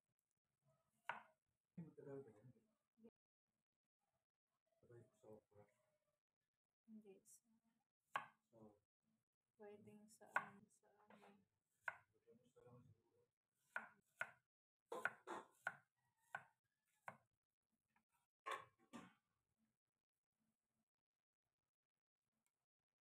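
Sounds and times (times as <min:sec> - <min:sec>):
knife knocking on wooden cutting board: 0:14.9 - 0:17.2.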